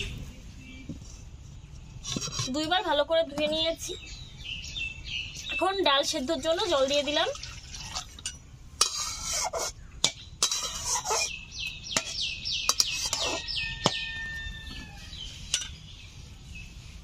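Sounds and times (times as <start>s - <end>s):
small bird chirping: 9.7s - 17.0s.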